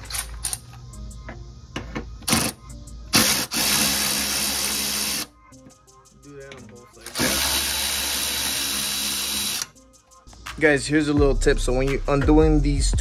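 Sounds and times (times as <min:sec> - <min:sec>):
power ratchet spinning: 0:02.3 - 0:05.3, 0:07.0 - 0:09.7.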